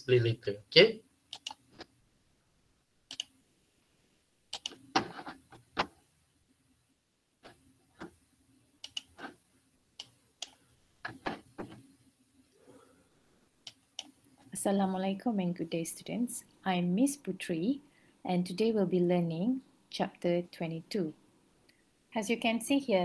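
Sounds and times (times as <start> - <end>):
faint steady hum: 0.0 - 23.0
computer mouse and keyboard clicks: 1.3 - 1.9, 3.1 - 3.4, 4.5 - 6.0, 8.8 - 9.4, 13.6 - 14.2.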